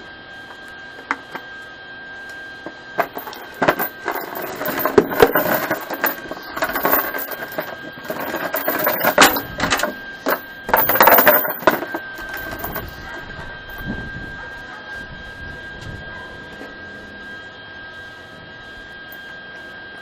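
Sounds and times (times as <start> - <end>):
chain links clinking: 3.0 - 13.9.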